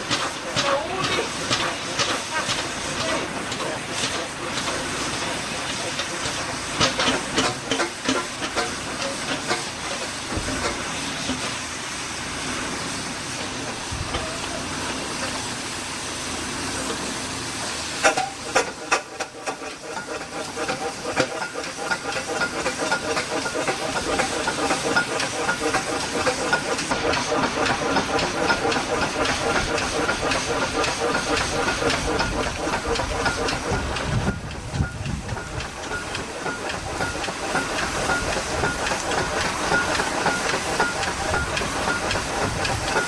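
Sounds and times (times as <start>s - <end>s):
steam engine beat: 0.0s - 43.0s
steam hissing: 0.0s - 43.0s.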